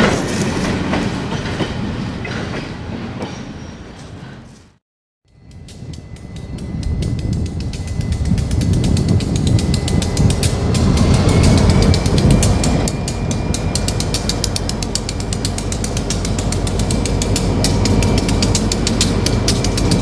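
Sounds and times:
diesel locomotive rumbling: 5.3s - 20.0s.

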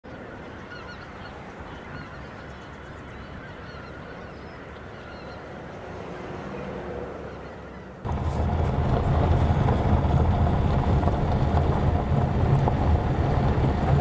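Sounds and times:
geese honking: 0.1s - 8.5s.

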